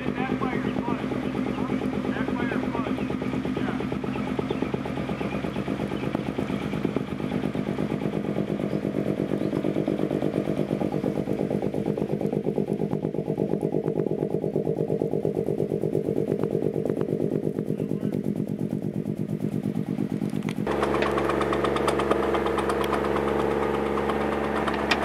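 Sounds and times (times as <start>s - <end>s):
engine droning: 0.0s - 25.0s
pneumatic impactor pounding: 20.6s - 25.0s.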